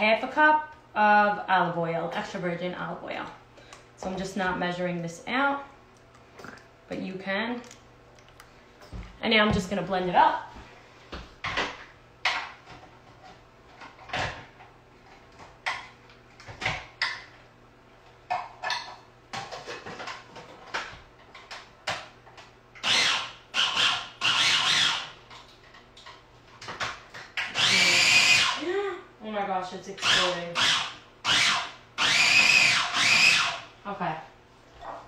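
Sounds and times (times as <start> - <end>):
food processor bursts: 22.8 - 25.2, 27.4 - 28.6, 30.0 - 33.7.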